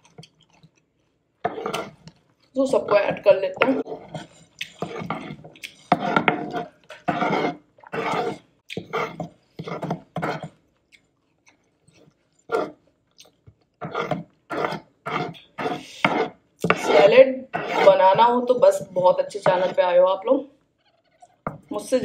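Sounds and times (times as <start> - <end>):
crunchy chewing: 0.0 - 2.6, 10.2 - 15.5.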